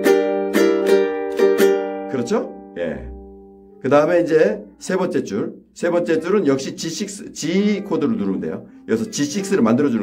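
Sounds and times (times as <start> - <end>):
ukulele strums: 0.0 - 3.4.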